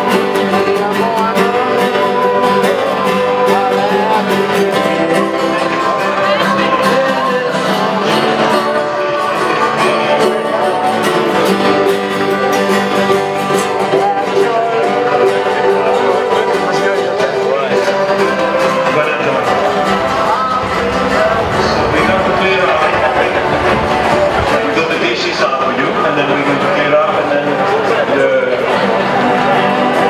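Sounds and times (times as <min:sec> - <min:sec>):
acoustic guitars strumming: 0:00.0 - 0:30.0.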